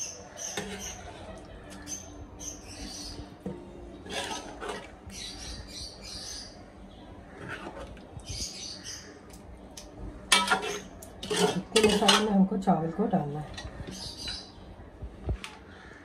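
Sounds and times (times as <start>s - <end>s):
ladle scraping a pot: 0.4s - 2.0s, 3.4s - 5.3s, 7.3s - 8.5s, 10.3s - 12.4s.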